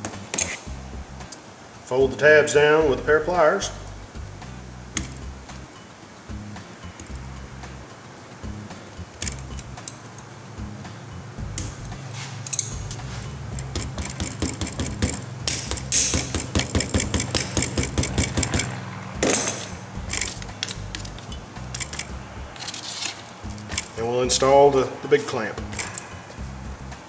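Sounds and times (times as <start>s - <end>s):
pliers clicking and scraping on metal: 0.1s - 0.7s, 9.1s - 10.3s, 11.6s - 24.0s, 25.6s - 26.1s
rock music: 2.8s - 24.9s
small metal clicks: 9.1s - 10.3s, 11.6s - 24.0s, 25.7s - 26.1s.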